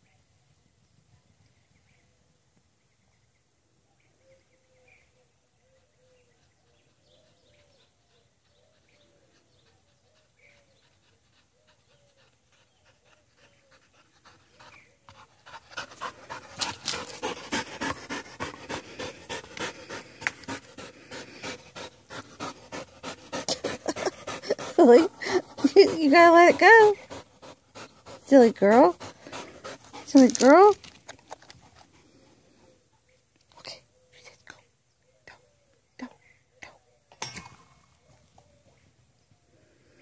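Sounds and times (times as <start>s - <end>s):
dog panting hard: 6.9s - 32.8s.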